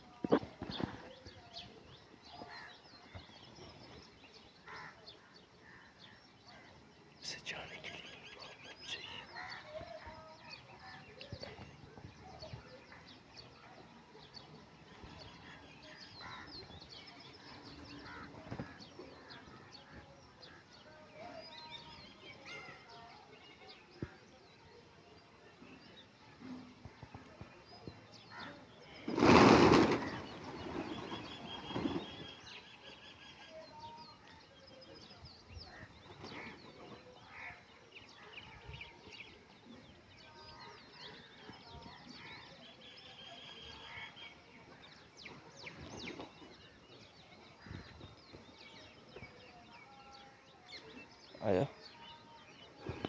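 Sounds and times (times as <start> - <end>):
pigeon wings flapping: 29.1 - 32.2
faint bird chirps: 29.9 - 53.0.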